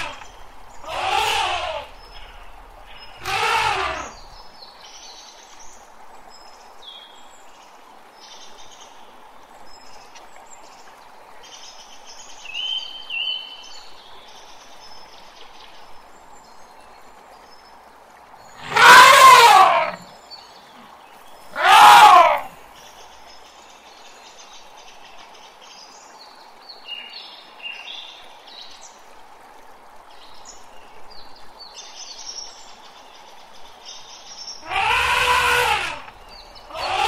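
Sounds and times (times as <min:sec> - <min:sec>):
elephants trumpeting: 0:00.0 - 0:00.2, 0:00.8 - 0:02.0, 0:03.2 - 0:04.3, 0:18.6 - 0:20.1, 0:21.5 - 0:22.6, 0:34.6 - 0:37.0.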